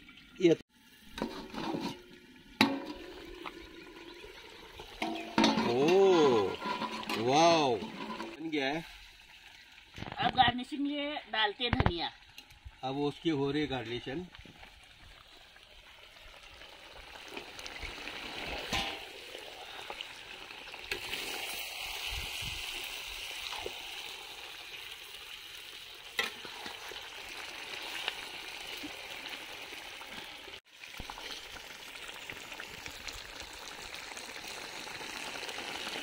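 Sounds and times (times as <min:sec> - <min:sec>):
chicken sizzling in iron pan: 0:00.7 - 0:10.0, 0:14.7 - 0:36.0
wooden spatula scraping: 0:05.2 - 0:08.4.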